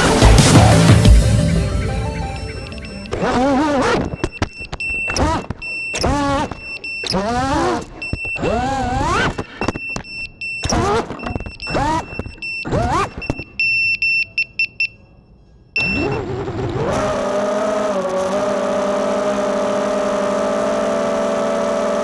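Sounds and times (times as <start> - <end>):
drone motors whining: 0.0 - 13.5, 15.8 - 22.0
high beeps: 1.4 - 8.7, 9.4 - 15.0, 15.7 - 16.2.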